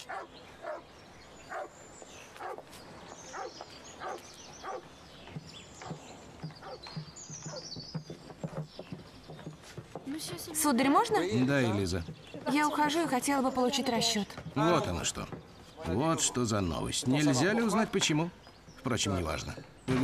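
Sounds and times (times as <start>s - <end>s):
dog barking: 0.0s - 0.8s, 1.5s - 1.8s, 2.4s - 2.7s, 3.3s - 4.9s, 6.6s - 6.8s
birds chirping: 0.0s - 20.0s.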